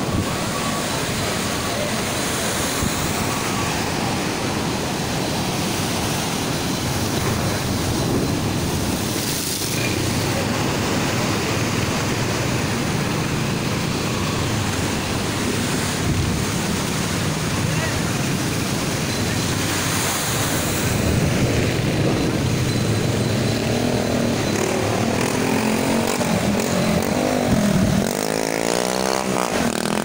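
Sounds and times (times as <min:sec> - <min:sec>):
sea surf breaking on seawall: 0:00.0 - 0:30.0
wind on microphone: 0:26.1 - 0:28.2.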